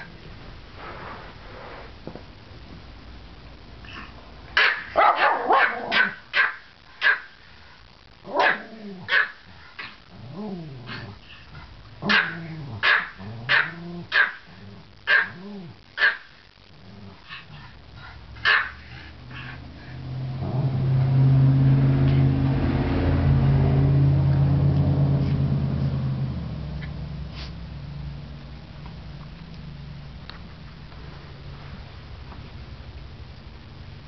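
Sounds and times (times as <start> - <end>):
dogs barking: 4.6 - 7.4, 8.3 - 9.4, 12.0 - 14.5, 15.1 - 15.4, 16.0 - 16.3, 18.4 - 19.6
dog growling: 9.8 - 15.8, 16.8 - 18.1.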